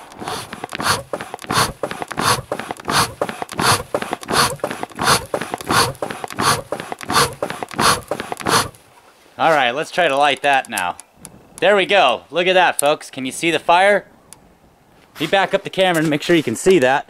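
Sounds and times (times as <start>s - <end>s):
hand-pumped bellows: 0.0s - 8.8s.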